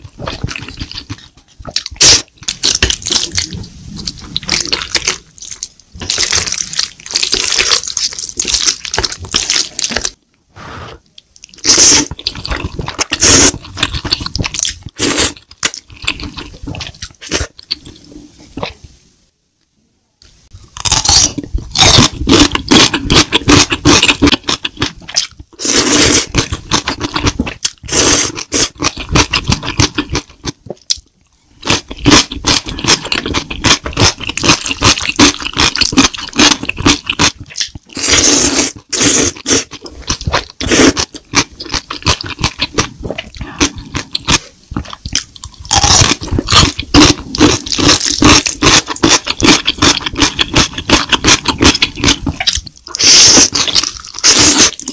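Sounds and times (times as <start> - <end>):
wet smacking and chewing: 26.3 - 31.1, 31.7 - 38.1, 38.7 - 54.9
noodle slurps: 45.8 - 54.9.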